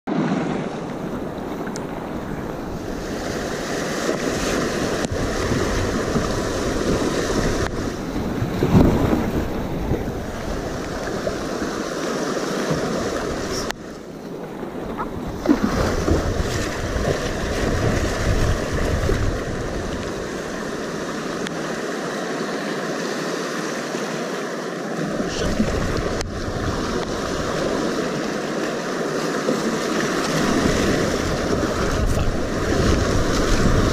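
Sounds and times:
whitewater splashing: 0.1 - 33.9
wind buffeting microphone: 0.8 - 12.0, 14.5 - 21.6, 29.9 - 33.9.

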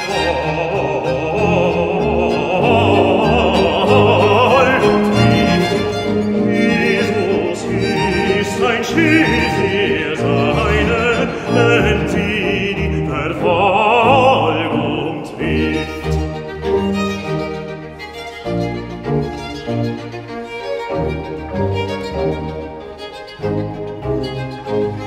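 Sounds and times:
low continuo line: 0.0 - 13.2
bass voice singing: 0.0 - 16.1
violins playing: 0.0 - 25.0.

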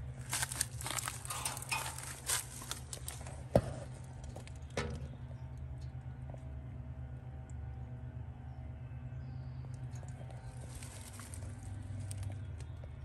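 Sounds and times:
dry leaves rustling: 0.0 - 3.5, 10.4 - 12.3
steady low hum: 0.0 - 13.0.

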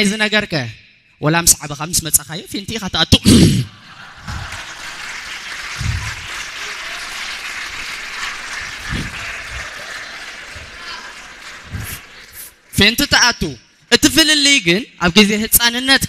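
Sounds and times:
comedian's voice: 0.0 - 4.7, 8.8 - 16.0
audience applauding: 3.8 - 12.8.

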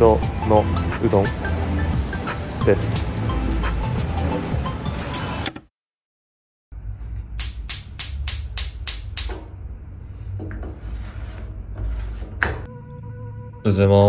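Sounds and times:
gas igniter clicking: 7.4 - 9.5.

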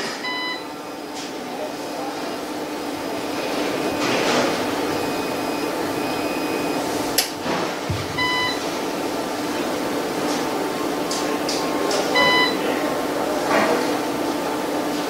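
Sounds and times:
steady fan noise: 0.0 - 15.0
short beep: 12.2 - 12.6.

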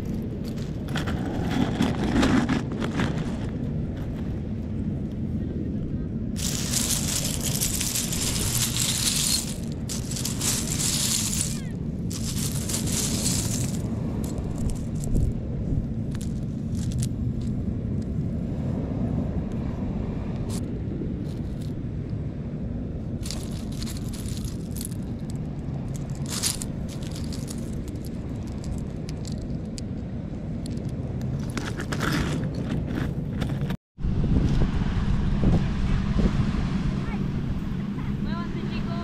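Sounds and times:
steady low rumble: 0.0 - 39.0
seashells scraping and clinking: 0.4 - 3.4, 6.4 - 15.4, 16.0 - 17.2, 23.2 - 30.0, 30.6 - 33.6.

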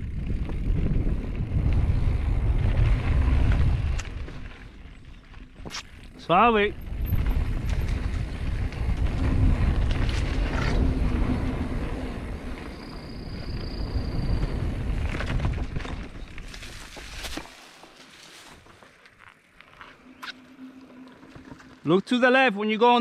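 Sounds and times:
wind rushing over microphone: 0.0 - 4.9, 6.3 - 17.3
bike rattling: 0.0 - 23.0.

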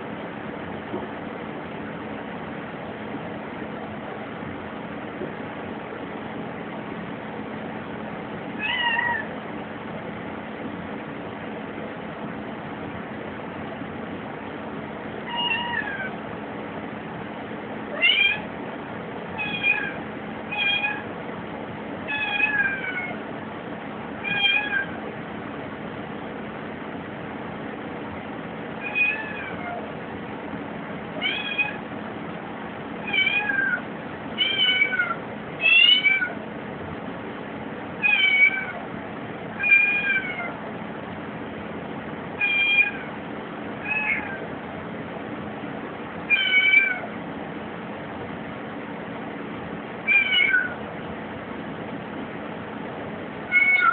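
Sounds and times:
kitten meowing: 8.6 - 9.3, 15.3 - 16.2, 18.0 - 18.5, 19.4 - 21.1, 22.1 - 23.2, 24.2 - 25.0, 28.8 - 29.9, 31.2 - 31.8, 33.0 - 33.8, 34.4 - 36.4, 38.0 - 38.8, 39.6 - 40.6, 42.4 - 43.1, 43.8 - 44.4, 46.3 - 47.1, 50.1 - 50.8, 53.5 - 53.9.

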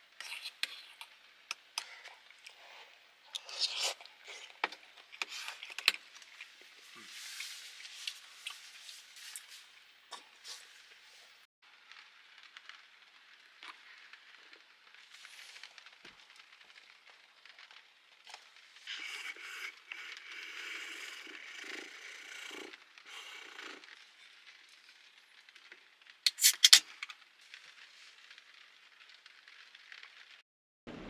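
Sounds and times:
rain pattering on camper shell: 11.6 - 30.4
drink can ring-pull opening: 26.3 - 26.8.

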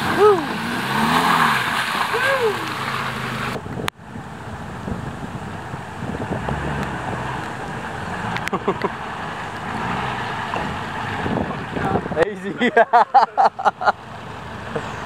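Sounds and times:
rain: 0.0 - 3.9, 6.4 - 11.7
truck engine at low revs: 0.0 - 15.0.

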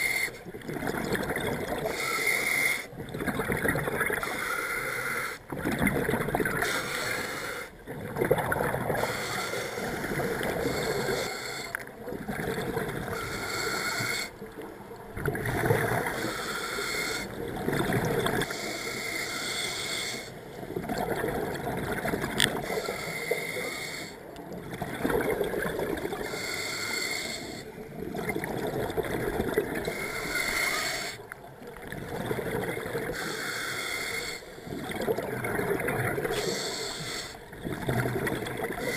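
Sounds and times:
gurgling exhaled bubbles: 0.0 - 2.1, 2.8 - 4.5, 5.4 - 6.8, 7.9 - 9.2, 9.8 - 13.3, 14.2 - 16.3, 17.2 - 18.5, 20.6 - 23.0, 23.9 - 26.4, 27.4 - 30.1, 31.1 - 33.2, 34.7 - 36.5, 37.4 - 38.9
regulator hissing inhale: 1.8 - 2.9, 6.6 - 7.8, 9.0 - 11.8, 13.1 - 14.3, 16.1 - 17.4, 18.4 - 20.4, 22.6 - 24.3, 26.2 - 27.8, 29.8 - 31.3, 33.1 - 34.8, 36.3 - 37.4.

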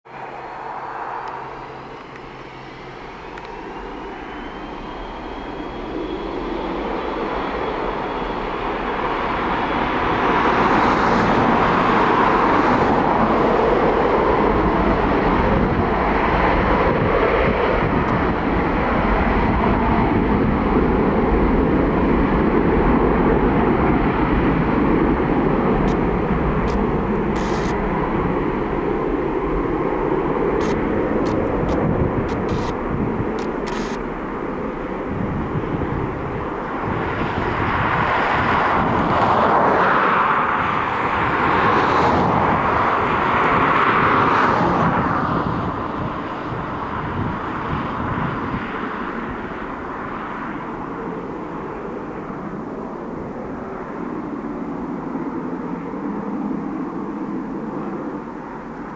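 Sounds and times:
jet engines spooling up: 0.1 - 37.4
rising engine whine: 0.1 - 47.4.

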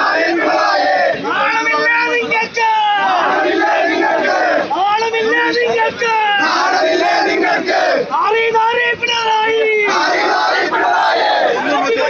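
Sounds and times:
crowd of men shouting slogans: 0.0 - 4.8, 5.8 - 8.2, 9.8 - 12.0.

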